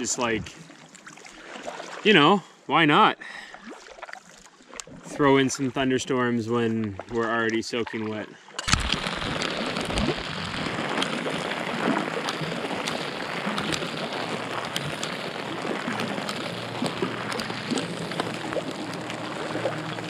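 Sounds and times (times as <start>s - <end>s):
steady rain: 8.7s - 20.0s.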